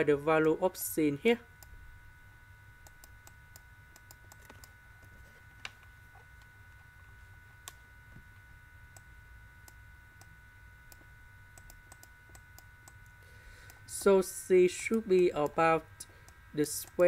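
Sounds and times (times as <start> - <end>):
faint electrical whine: 0.0 - 17.0
computer mouse clicks: 2.8 - 4.7, 10.9 - 14.1.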